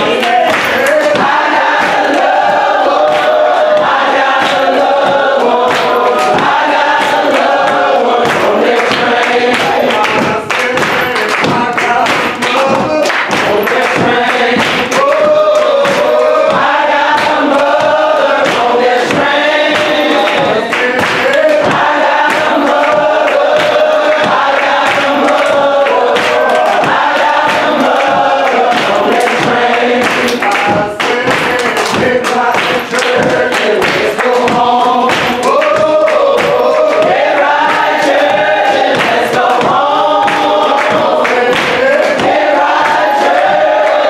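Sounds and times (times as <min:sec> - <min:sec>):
congregation and choir singing gospel: 0:00.0 - 0:44.0
sharp percussive hits: 0:00.0 - 0:44.0.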